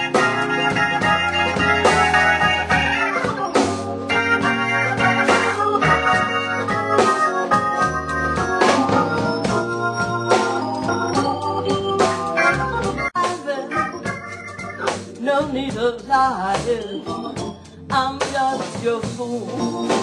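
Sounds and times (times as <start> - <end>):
low bass notes: 0.0 - 13.2
drum kit with cymbals: 0.0 - 20.0
organ playing blues chords: 0.0 - 20.0.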